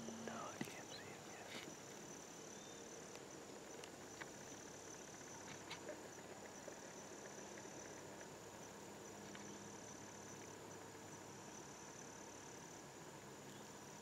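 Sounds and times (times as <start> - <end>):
faint ticks: 0.0 - 2.2, 3.0 - 10.8
insects trilling: 0.0 - 14.0.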